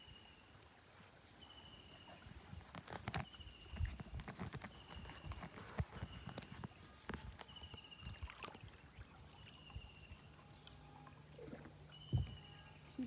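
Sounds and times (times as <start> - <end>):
water trickling and dripping: 0.0 - 13.0
knocks against canoe hull: 12.1 - 12.4.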